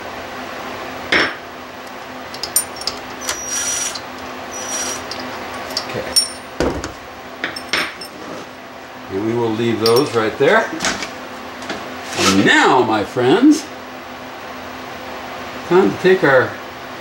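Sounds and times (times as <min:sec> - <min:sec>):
metallic clinks and knocks: 0:02.3 - 0:04.0, 0:04.6 - 0:08.2
cordless drill spinning: 0:02.4 - 0:05.4.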